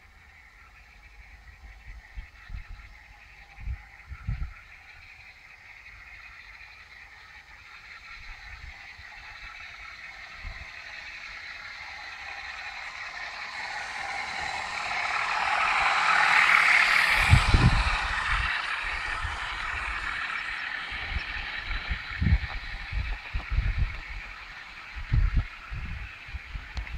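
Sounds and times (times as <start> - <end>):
model locomotive engine sound: 0.0 - 26.9
wheels rumbling on track: 7.8 - 26.9.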